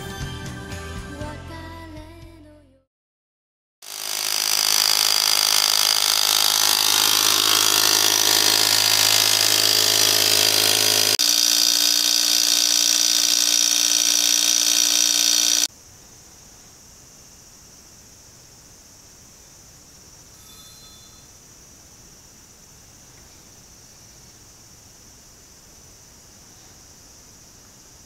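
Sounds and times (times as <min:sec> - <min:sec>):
electric vacuum pump running: 0:03.8 - 0:15.7.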